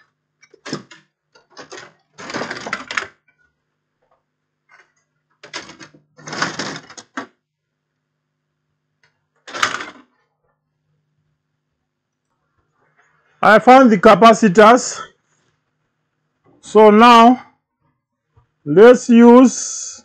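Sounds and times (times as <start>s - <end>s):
small parts rattling: 0.4s - 3.5s, 4.7s - 7.3s.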